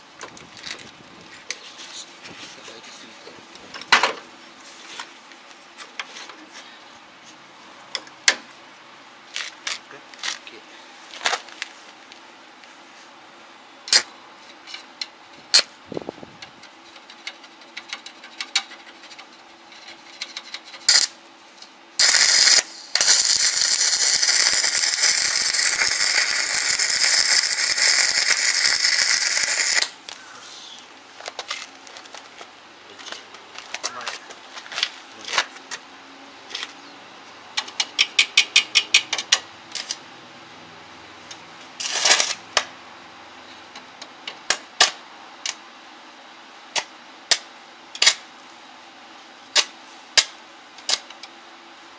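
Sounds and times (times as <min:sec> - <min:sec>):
scattered clicks and knocks: 0:16.4 - 0:21.0, 0:37.6 - 0:39.9
welding arc crackling and hissing: 0:20.8 - 0:21.2, 0:22.0 - 0:31.0.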